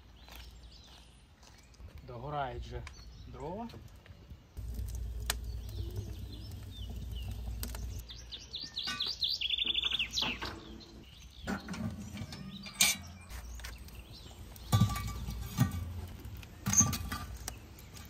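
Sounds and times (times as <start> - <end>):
small birds chirping: 0.0 - 18.0
low rumble: 4.6 - 8.0.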